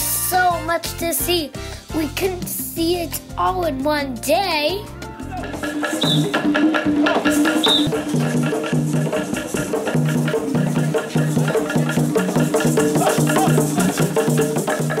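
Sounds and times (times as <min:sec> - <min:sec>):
hand drums playing fast rhythm: 0:05.0 - 0:15.0.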